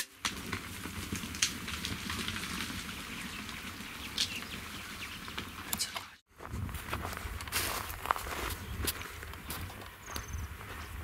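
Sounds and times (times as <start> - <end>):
hooves clattering on dry ground: 0.0 - 11.0.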